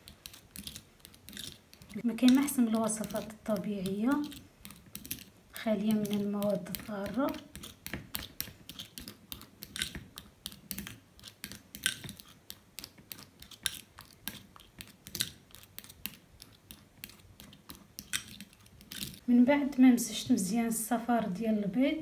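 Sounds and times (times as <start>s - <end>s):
spoon scraping a ceramic bowl: 0.2s - 10.0s.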